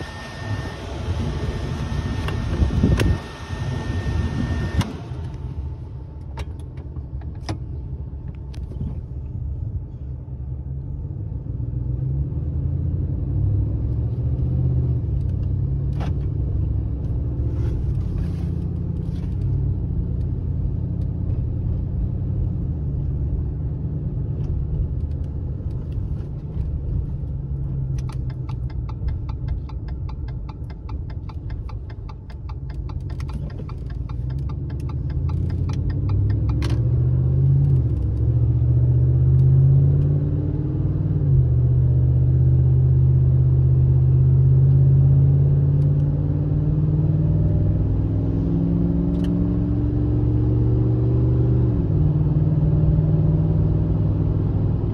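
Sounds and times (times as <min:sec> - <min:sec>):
engine and road hum: 0:00.0 - 0:54.9
wind noise: 0:01.8 - 0:04.8
turn signal ticking: 0:24.4 - 0:40.2.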